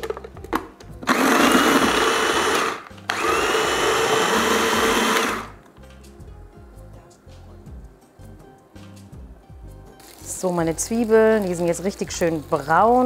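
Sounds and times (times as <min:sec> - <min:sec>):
food processor motor whirring: 0:01.0 - 0:05.6.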